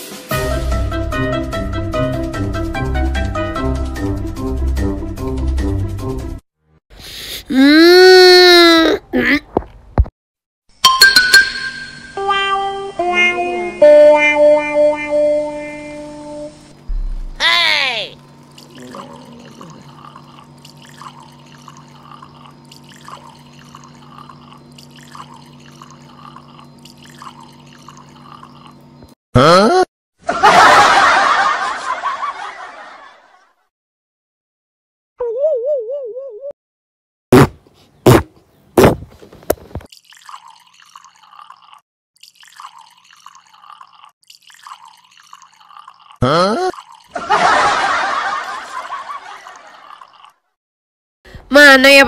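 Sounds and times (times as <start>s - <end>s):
water trickling into plastic bottle: 18.4s - 28.9s, 39.5s - 47.2s.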